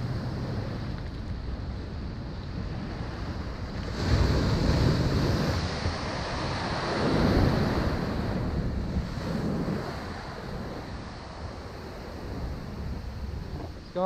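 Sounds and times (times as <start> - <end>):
ocean surf washing onto beach: 0.0 - 14.0
wind buffeting microphone: 0.0 - 14.0.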